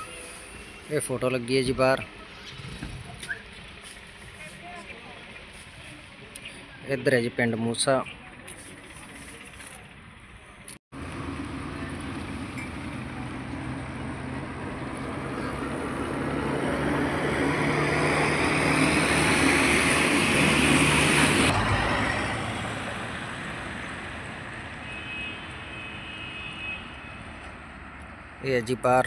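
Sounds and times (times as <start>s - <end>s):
faint road traffic: 0.0s - 29.0s
vehicle engine and tyre noise: 0.0s - 29.0s.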